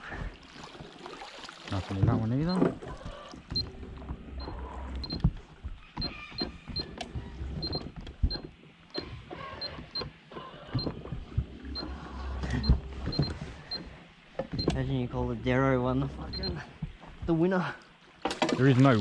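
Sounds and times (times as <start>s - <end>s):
rope and gear knocking: 2.9s - 14.8s.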